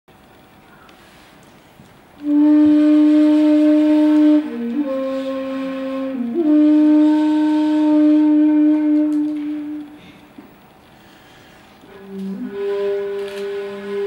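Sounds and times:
bamboo flute long notes: 2.2 - 10.4, 11.1 - 14.0.

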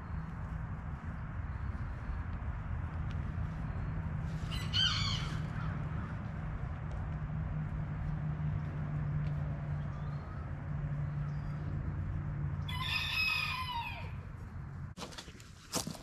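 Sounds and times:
rooster crowing: 4.5 - 5.7, 12.6 - 14.2.

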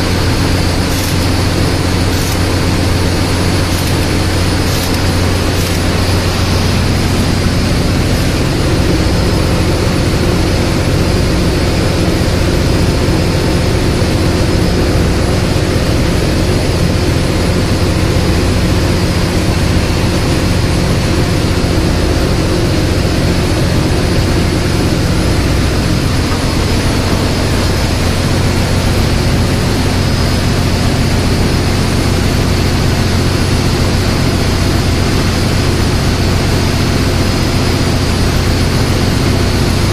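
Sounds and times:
low hum: 0.0 - 17.0
ship engine machinery droning: 0.0 - 39.9.

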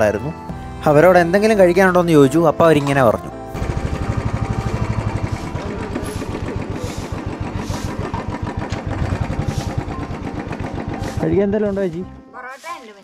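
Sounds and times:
motorcycle engine thumping: 3.6 - 11.3.

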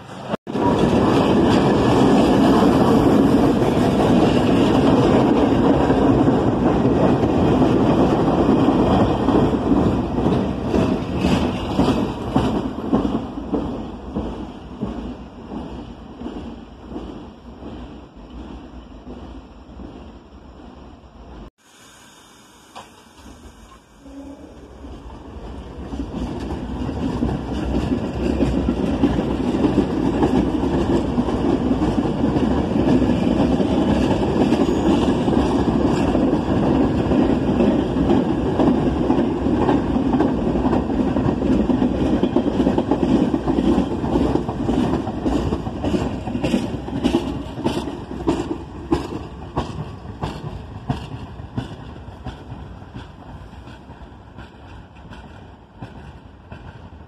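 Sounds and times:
subway train wheels rumbling: 0.0 - 57.0
wheels clicking over rail joints: 25.4 - 56.9.

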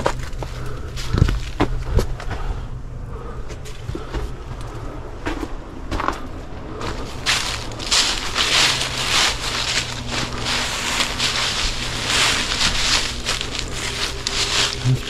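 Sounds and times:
footsteps crunching dry leaves: 6.8 - 15.0.

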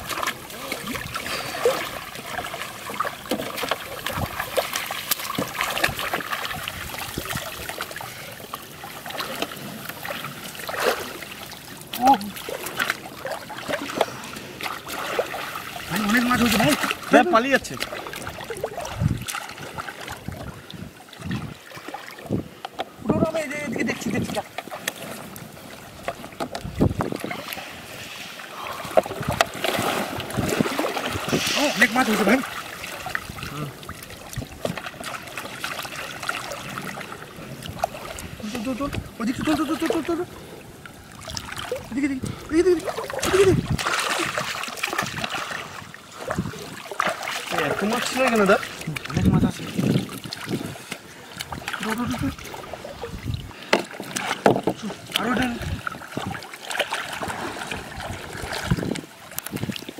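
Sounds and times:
shallow water splashing: 0.0 - 59.9
small knocks: 53.7 - 54.8.

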